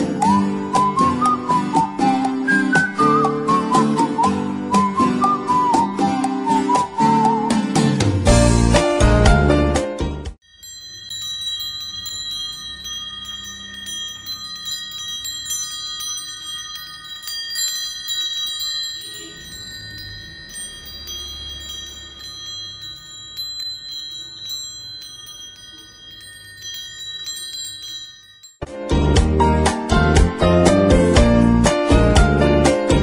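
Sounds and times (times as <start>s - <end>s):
brass wind chime ringing: 10.4s - 28.7s.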